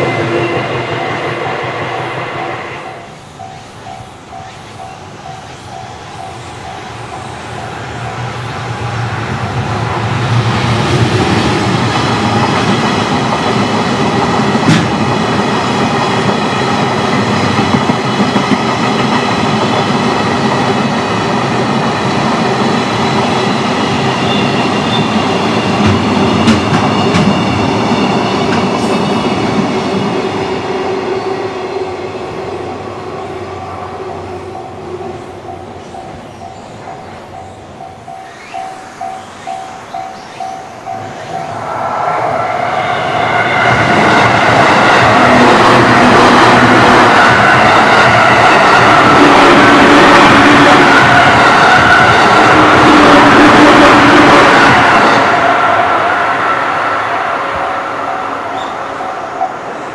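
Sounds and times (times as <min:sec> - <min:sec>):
crossing bell dinging: 0:03.0 - 0:08.6, 0:33.5 - 0:41.9
freight train wheels clattering: 0:10.7 - 0:20.9, 0:23.2 - 0:30.8.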